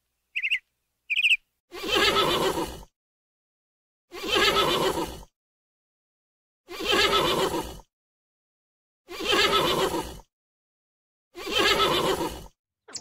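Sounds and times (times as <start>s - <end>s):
horse whinnying: 1.8s - 2.6s, 4.2s - 5.0s, 11.4s - 12.3s.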